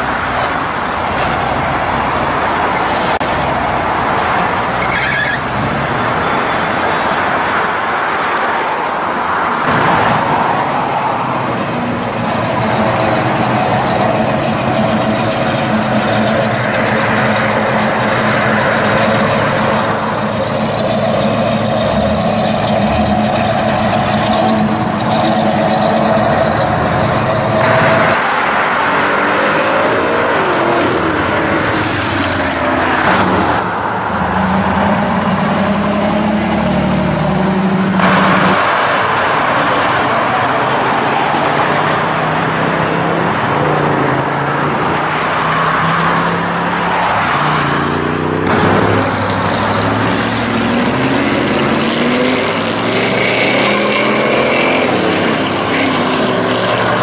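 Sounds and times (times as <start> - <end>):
car engine running: 0.0 - 28.2
road traffic passing: 0.0 - 57.0.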